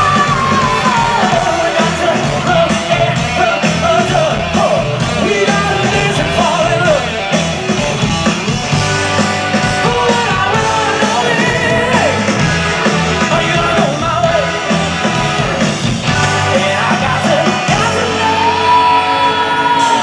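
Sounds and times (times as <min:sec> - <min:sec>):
man singing: 0:00.0 - 0:07.4, 0:09.5 - 0:20.0
live rock band playing: 0:00.0 - 0:20.0.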